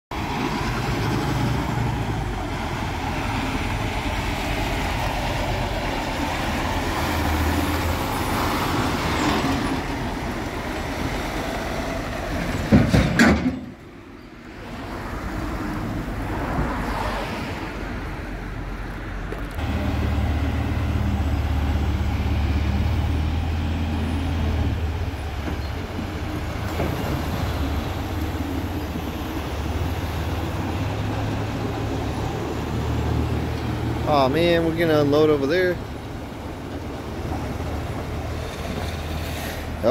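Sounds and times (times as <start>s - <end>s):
diesel truck engine running: 0.1s - 14.0s, 19.4s - 39.9s
road traffic: 0.1s - 39.9s
diesel engine idling: 19.5s - 39.9s.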